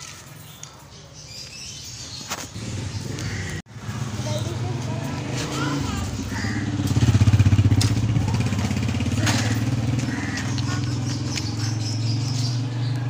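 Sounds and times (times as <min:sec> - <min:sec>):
small engine running: 0:03.9 - 0:13.0.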